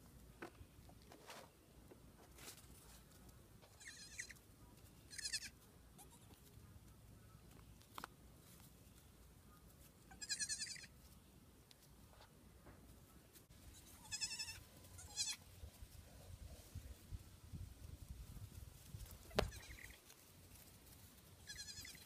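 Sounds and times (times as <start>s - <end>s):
goat kids bleating: 3.6s - 4.4s, 5.1s - 6.5s, 10.0s - 11.0s, 13.6s - 15.5s, 19.2s - 20.0s, 21.4s - 22.0s.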